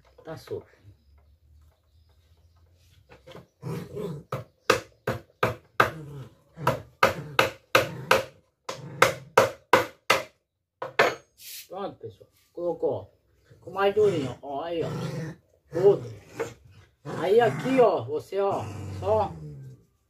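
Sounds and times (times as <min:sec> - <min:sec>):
hammer hitting a nail: 0:04.6 - 0:06.0, 0:06.6 - 0:11.2.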